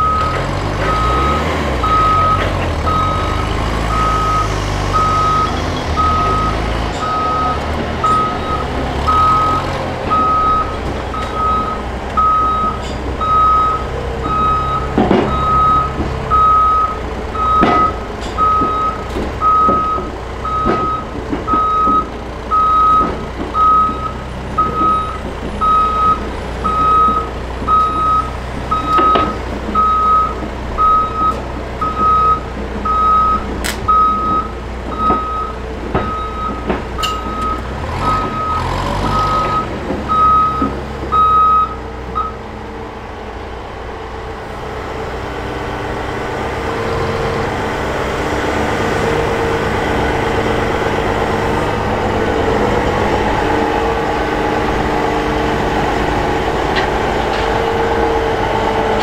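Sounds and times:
diesel engine revving: 0.0s - 59.0s
backup alarm beeping: 3.9s - 42.4s.

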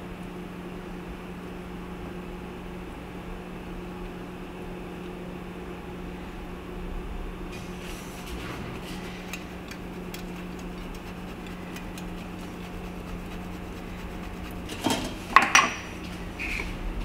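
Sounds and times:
low hum: 0.8s - 17.0s
cheese grater scraping ticks: 9.1s - 15.0s.

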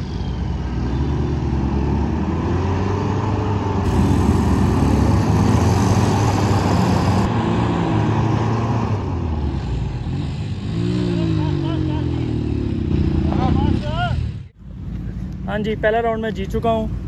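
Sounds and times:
engines running hard under load: 0.0s - 17.0s
spinning tyres spraying dirt: 3.7s - 8.8s.

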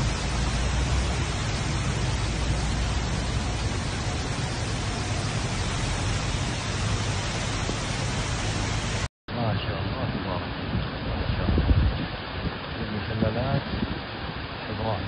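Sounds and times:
deep rumble: 0.0s - 9.1s
waterfalls rushing: 0.0s - 9.1s.

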